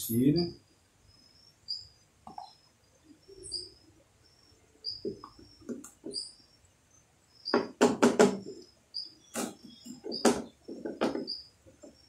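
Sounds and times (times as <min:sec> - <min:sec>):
plastic bottles knocking: 0:07.5 - 0:08.5, 0:10.2 - 0:12.0.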